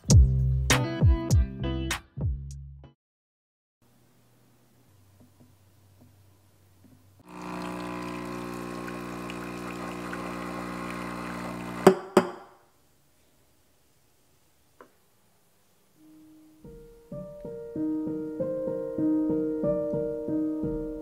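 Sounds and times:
espresso machine pump humming: 7.2 - 12.4
coffee pouring into cup: 7.3 - 12.4.

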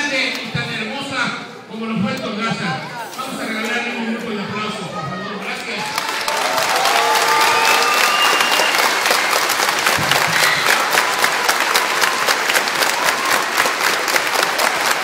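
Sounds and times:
crowd clapping: 5.8 - 15.0.

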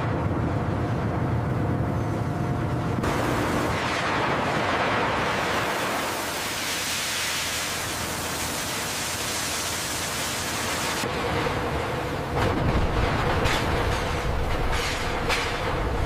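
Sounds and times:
water jets hissing into steam: 5.4 - 11.1.

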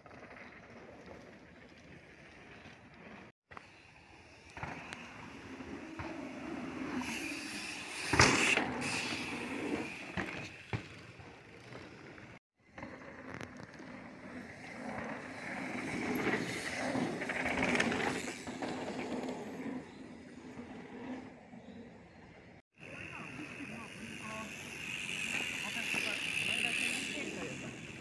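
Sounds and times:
bike tyres rolling over dirt: 0.0 - 21.7, 22.8 - 28.0.

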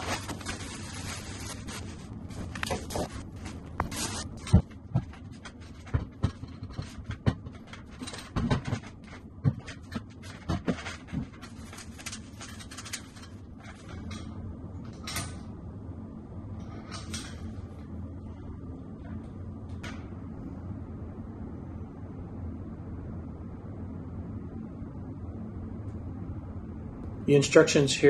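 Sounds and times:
handling scrapes: 0.0 - 14.1.

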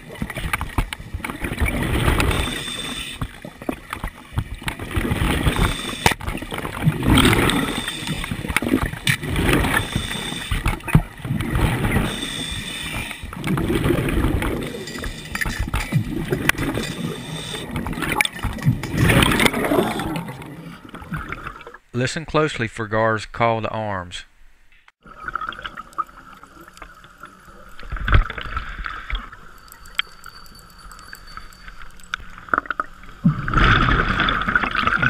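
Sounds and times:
underwater bubbles gurgling: 0.0 - 21.8, 25.0 - 35.0
diver breathing through regulator: 2.0 - 3.3, 5.3 - 6.2, 7.2 - 8.5, 9.3 - 10.6, 11.8 - 13.4, 16.6 - 18.0.

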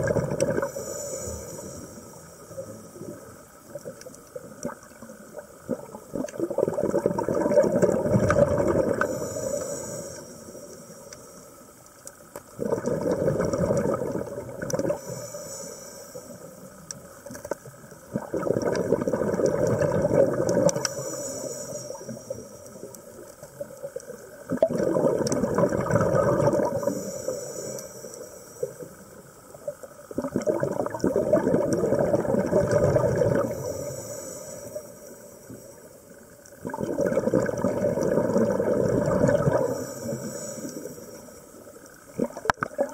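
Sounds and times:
exhaled bubbles rushing: 0.0 - 0.7, 4.6 - 9.2, 12.6 - 15.0, 18.1 - 20.9, 24.4 - 26.9, 30.1 - 33.7, 36.6 - 39.8, 42.1 - 42.9
regulator inhalation hiss: 0.6 - 3.5, 8.9 - 12.3, 14.8 - 17.2, 20.7 - 23.2, 26.6 - 30.1, 33.4 - 36.5, 39.5 - 42.0.

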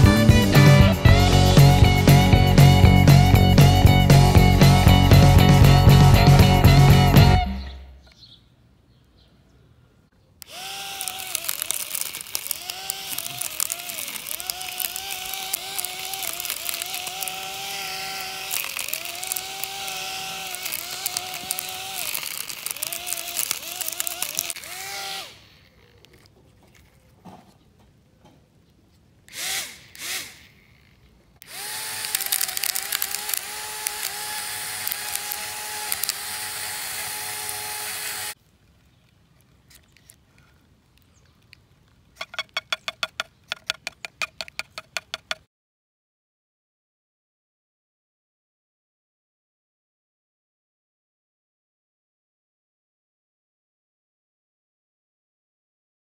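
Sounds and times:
grass being cut crackling: 0.0 - 7.7, 10.4 - 26.3, 29.3 - 38.4
small electric motor whining: 10.4 - 26.9, 29.3 - 38.4.

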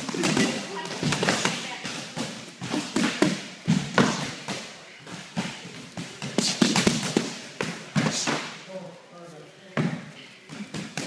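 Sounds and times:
punches and kicks on pads: 5.4 - 8.4.

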